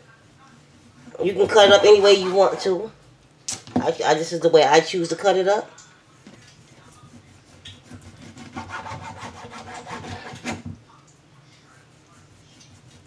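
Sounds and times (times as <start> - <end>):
knife scraping plastic cutting board: 1.0 - 2.8, 6.8 - 10.8
knife sawing through raw meat: 7.2 - 10.6.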